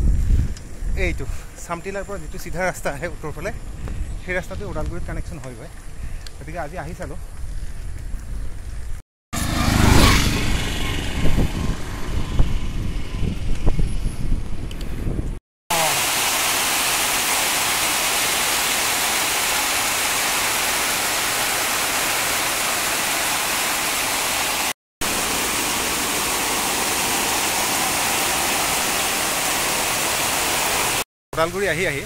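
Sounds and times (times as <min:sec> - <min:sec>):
heavy rain pouring: 0:15.7 - 0:31.0.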